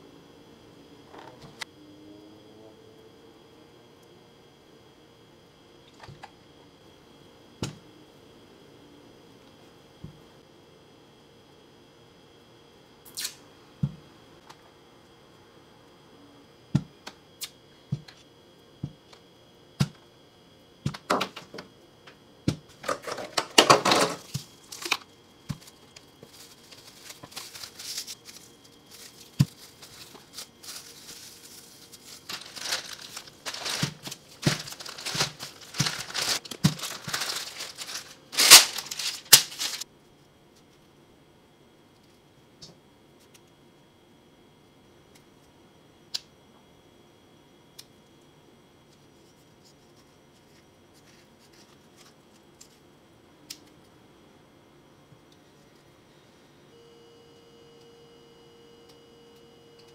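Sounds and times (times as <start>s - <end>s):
cling wrap crinkling: 24.2s - 39.8s
cling wrap ripping: 26.4s - 39.8s.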